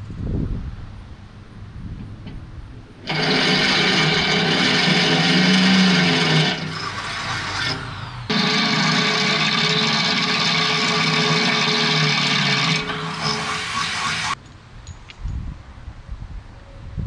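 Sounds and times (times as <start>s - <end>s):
electric drill drilling steel: 3.0s - 14.4s.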